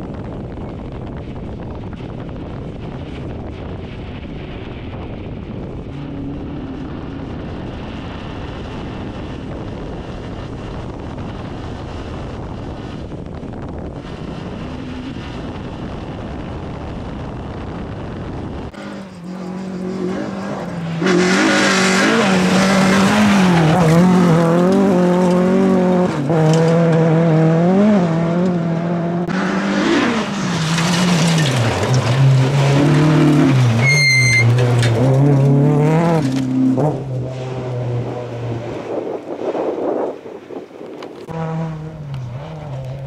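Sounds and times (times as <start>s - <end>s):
wind rushing: 0.0s - 41.2s
rally car engine revving: 2.6s - 40.2s, 40.9s - 43.0s
car sliding on gravel: 18.8s - 27.0s, 29.4s - 37.0s.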